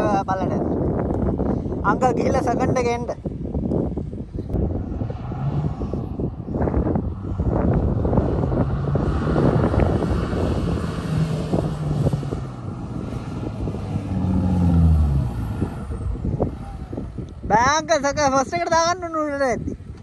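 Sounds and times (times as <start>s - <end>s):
vehicle engine revving: 4.6s - 17.5s.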